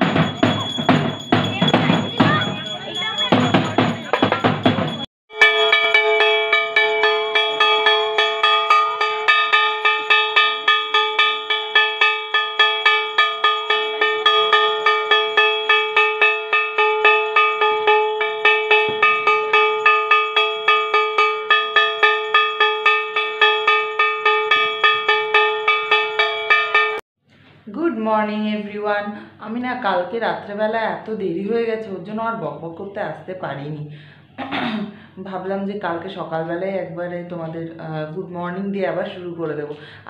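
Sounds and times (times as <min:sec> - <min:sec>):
bell ringing rapidly: 0:00.0 - 0:27.0.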